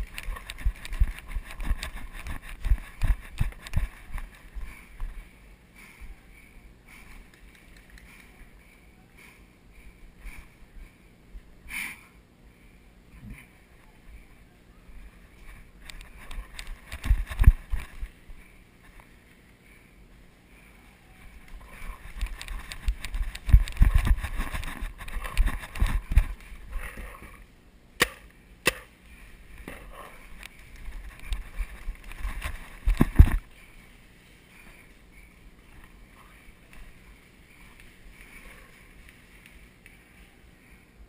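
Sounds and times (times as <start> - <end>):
camera bumping and rubbing: 0.0 - 5.2, 15.4 - 18.1, 21.5 - 26.5, 29.6 - 33.5
sharp cracks: 28.0 - 29.0.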